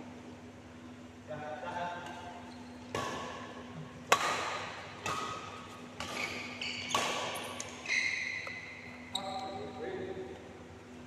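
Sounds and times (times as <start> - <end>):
rackets hitting shuttlecock: 2.9 - 8.7
shoes squeaking on floor: 6.1 - 9.7.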